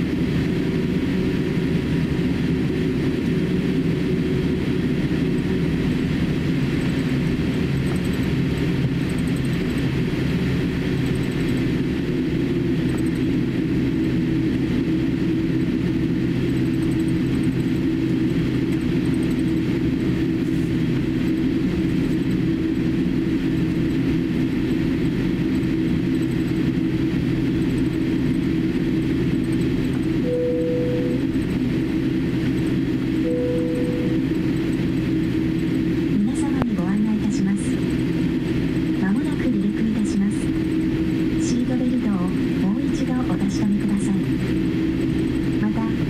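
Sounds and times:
jet engines humming: 0.0 - 46.0
low droning tone: 30.1 - 32.2, 33.0 - 36.7.

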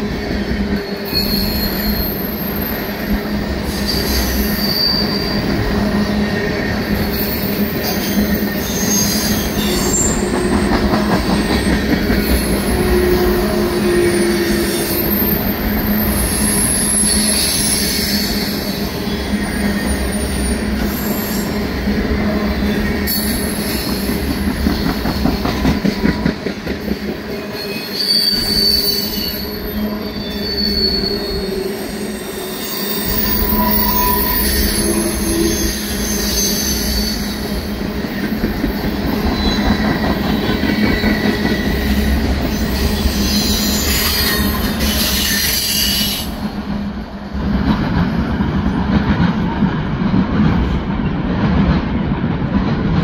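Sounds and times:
train wheels rumbling on rail: 0.0 - 53.0
high-pitched wheel squeals: 0.9 - 2.9, 3.7 - 6.0, 7.0 - 10.6, 12.3 - 21.6, 27.5 - 37.5.

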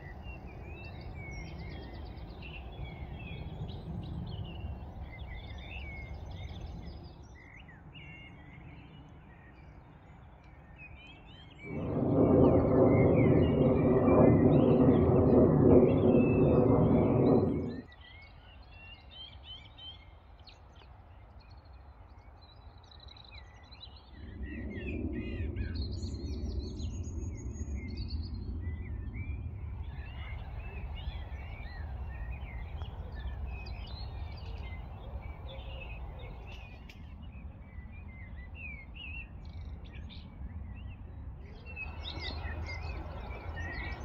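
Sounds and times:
low rumbling noise: 11.6 - 17.9, 24.0 - 32.7.

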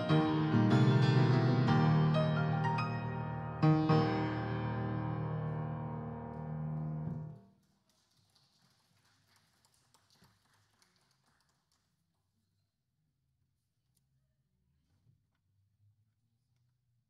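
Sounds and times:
grand piano chords: 0.0 - 7.4.

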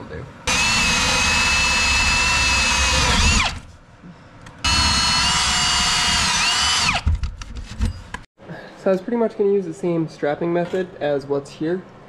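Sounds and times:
right-angle drill cutting wood: 0.5 - 3.6, 4.6 - 7.1.

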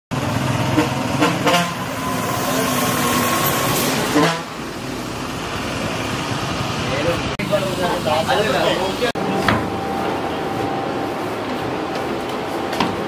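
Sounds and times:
street traffic: 0.1 - 13.0
vehicle horn sounding: 0.6 - 2.3, 4.1 - 4.6.

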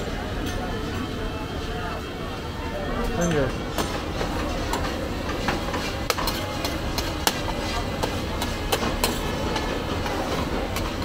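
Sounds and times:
metal spatula scraping steel griddle: 4.0 - 11.0.

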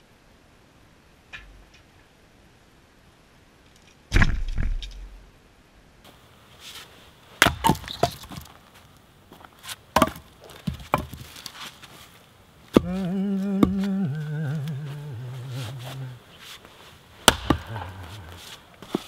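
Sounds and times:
logs tumbling onto ground: 6.1 - 14.9, 15.9 - 19.0
split wood pieces knocking: 7.4 - 8.5, 10.0 - 11.5, 12.7 - 13.9, 17.2 - 18.1
axe splitting firewood: 7.4 - 8.6, 9.9 - 11.7, 12.7 - 14.1, 17.2 - 19.0.

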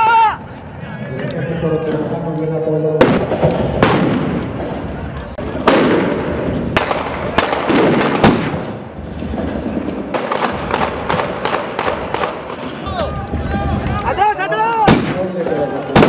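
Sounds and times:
rifle shots echoing: 3.0 - 4.4, 5.6 - 8.9, 10.1 - 12.7, 14.8 - 16.0.

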